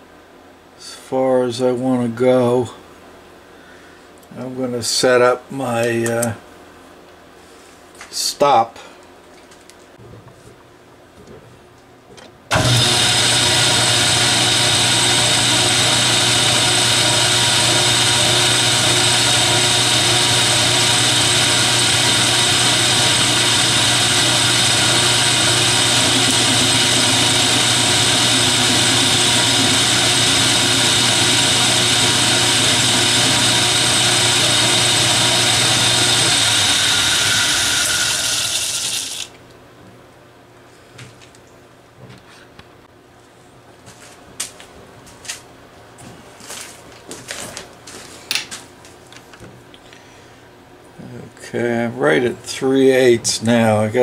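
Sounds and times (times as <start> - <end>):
gear and motor whine: 12.5 - 39.3
metal lathe running: 12.5 - 39.3.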